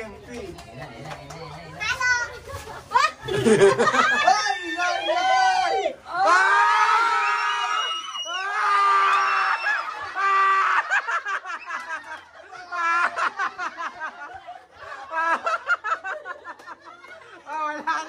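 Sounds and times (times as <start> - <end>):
people laughing: 2.3 - 5.0, 8.8 - 18.0.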